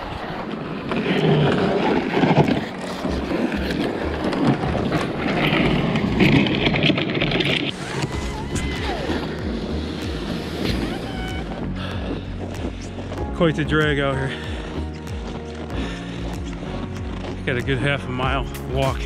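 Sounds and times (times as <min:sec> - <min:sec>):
wind on microphone: 0:00.0 - 0:13.4
sled scraping over snow: 0:00.0 - 0:19.0
footsteps crunching through snow: 0:00.3 - 0:19.0.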